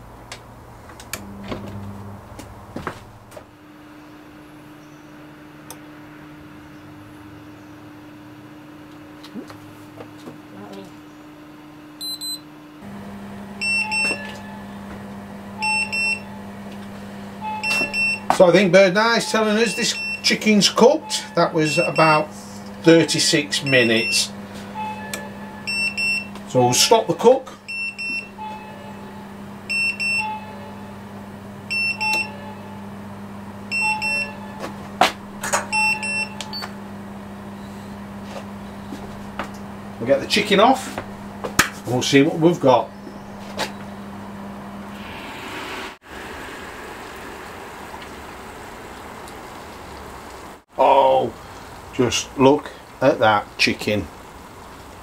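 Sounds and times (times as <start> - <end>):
electric grill humming: 0.0 - 55.0
thermometer alarm double beeps: 12.0 - 12.5, 13.6 - 14.6, 15.6 - 16.3, 17.4 - 18.3, 19.2 - 20.3, 21.0 - 22.3, 23.6 - 26.4, 27.7 - 28.9, 29.7 - 30.7, 31.7 - 32.6, 33.7 - 34.6, 35.7 - 36.7.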